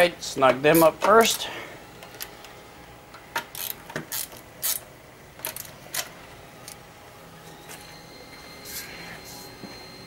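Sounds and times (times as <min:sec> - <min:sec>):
hand ratchet clicking: 0:03.5 - 0:04.8.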